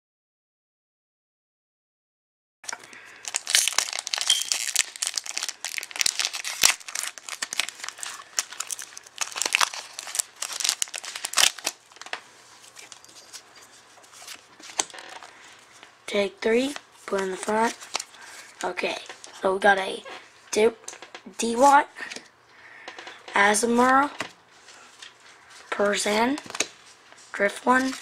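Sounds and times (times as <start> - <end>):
foil wrapper tearing and crinkling: 2.7 - 13.5, 17.7 - 18.6.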